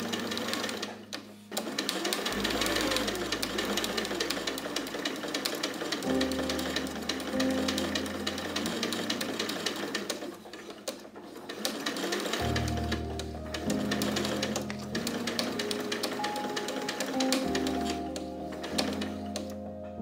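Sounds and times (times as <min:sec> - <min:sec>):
sewing machine stitching: 0:00.0 - 0:19.6
background music: 0:00.0 - 0:20.0.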